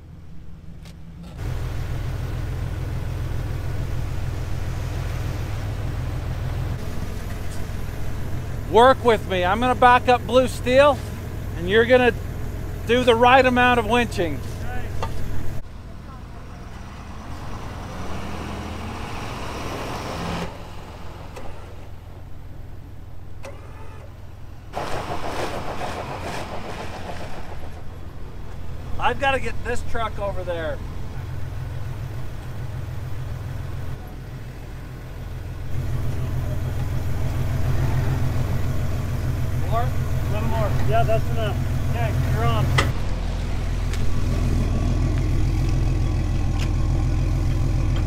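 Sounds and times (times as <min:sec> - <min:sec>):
vehicle engine idling: 0:00.0 - 0:48.0.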